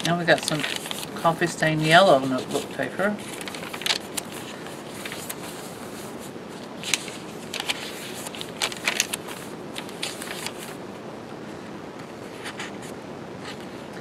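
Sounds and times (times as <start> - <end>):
paper pages rustling: 0.0 - 10.8.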